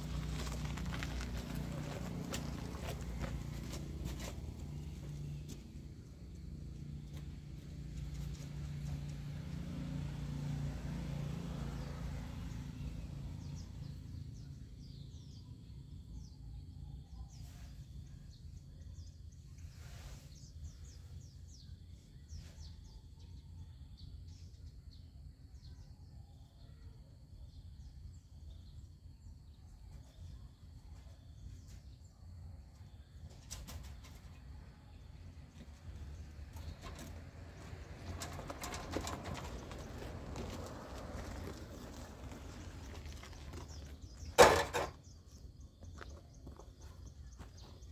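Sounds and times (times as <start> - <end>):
small birds chirping: 41.2 - 47.9.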